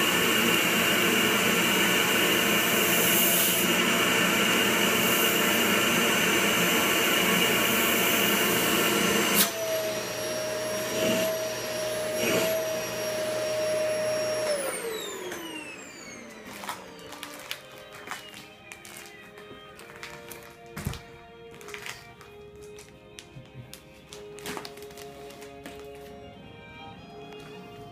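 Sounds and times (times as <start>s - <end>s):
vacuum motor winding down: 0.0s - 18.4s
vacuum cleaner sucking air: 0.0s - 18.5s.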